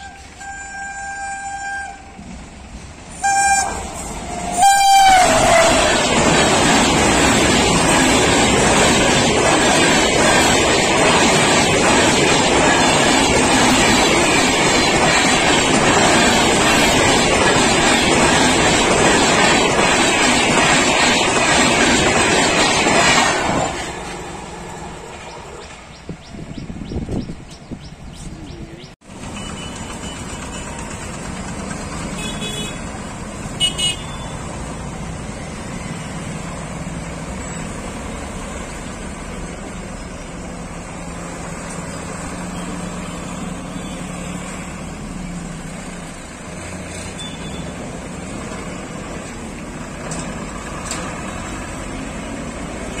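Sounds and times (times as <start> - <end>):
truck and motorcycle engines: 28.1 - 53.0.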